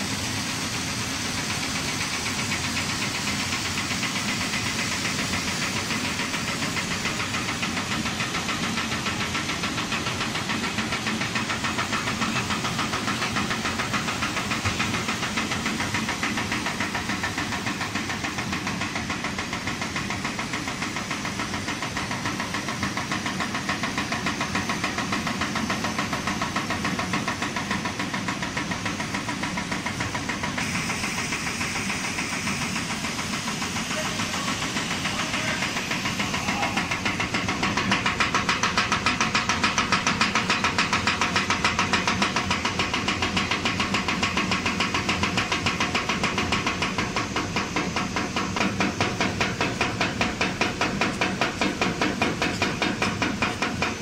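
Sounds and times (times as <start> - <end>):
machinery rattling din: 0.1 - 54.0.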